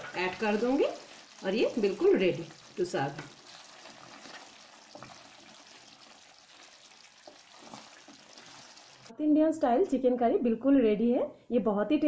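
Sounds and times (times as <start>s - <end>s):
curry sizzling and bubbling: 0.0s - 9.1s.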